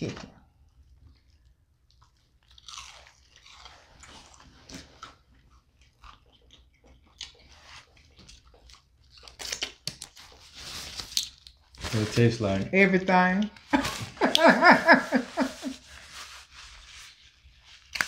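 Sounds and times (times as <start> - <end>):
crunchy chewing: 1.1 - 10.5.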